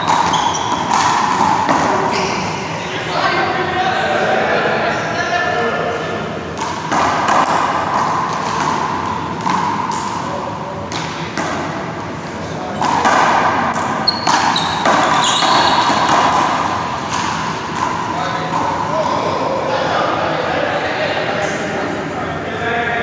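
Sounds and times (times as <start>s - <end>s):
handball hitting wall and floor: 0.0s - 2.5s, 6.6s - 19.4s
sneaker squeaks: 0.0s - 2.6s, 13.9s - 16.4s.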